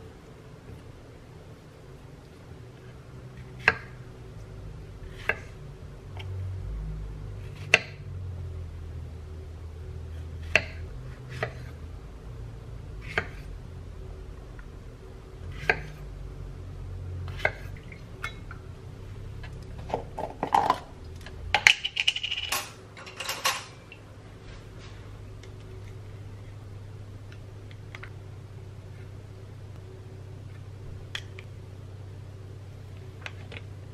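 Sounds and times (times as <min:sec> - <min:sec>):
clatter and clinks: 0:21.6 - 0:23.8.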